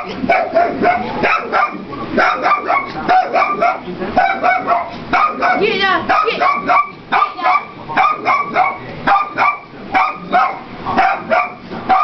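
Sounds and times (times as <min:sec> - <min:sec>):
dog barking rapidly: 0:00.0 - 0:12.0.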